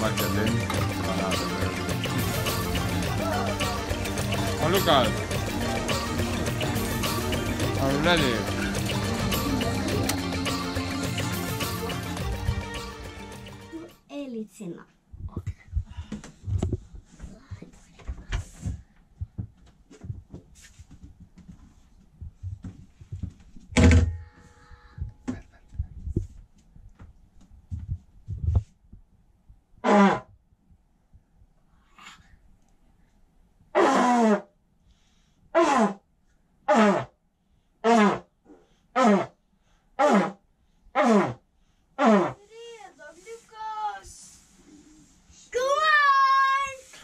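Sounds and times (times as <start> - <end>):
soft knocks and thumps: 15.4 - 24.4.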